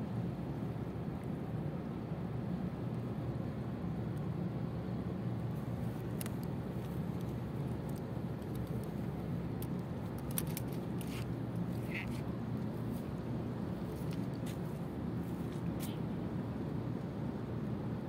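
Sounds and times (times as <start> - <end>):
distant ship engines: 0.0 - 18.0
water along a seawall: 0.0 - 18.0
wind: 0.0 - 18.0.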